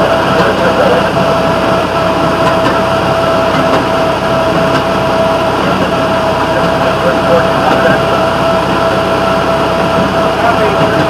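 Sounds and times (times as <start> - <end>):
railroad motorcar droning on rails: 0.0 - 11.0.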